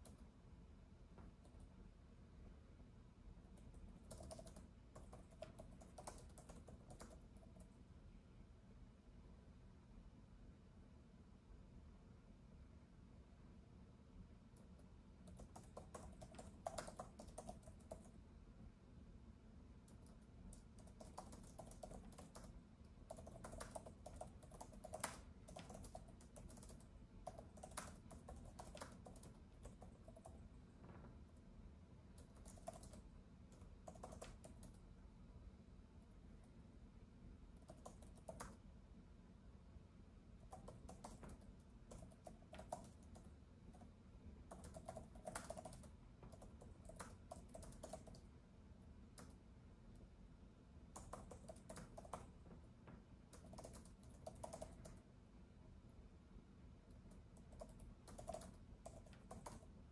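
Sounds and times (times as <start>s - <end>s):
typing on a keyboard: 0.0s - 0.3s, 3.4s - 7.8s, 14.6s - 18.2s, 19.8s - 30.5s, 32.1s - 34.8s, 37.6s - 38.7s, 40.4s - 48.3s, 49.1s - 49.4s, 50.9s - 52.4s, 53.3s - 55.1s, 56.9s - 59.8s
low steady hum: 0.0s - 59.9s.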